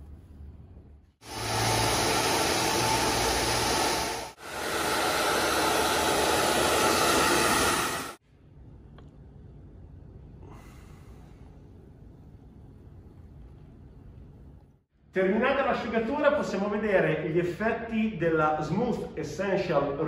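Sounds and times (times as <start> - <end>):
hair dryer blowing: 1.2 - 8.2.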